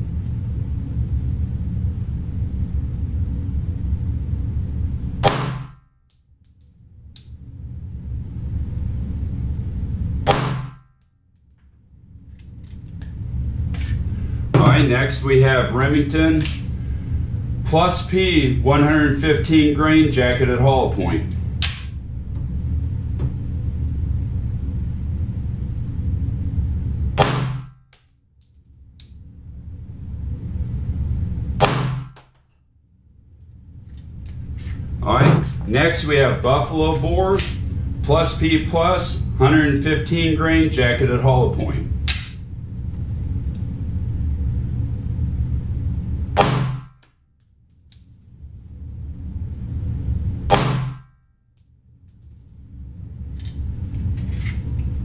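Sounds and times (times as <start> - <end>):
steady low rumble: 0.0 - 55.0
pistol shot: 5.2 - 5.8, 10.3 - 10.8, 27.2 - 27.7, 31.6 - 32.2, 46.4 - 46.9, 50.5 - 51.1
pistol shots: 5.2 - 5.8, 10.3 - 10.8.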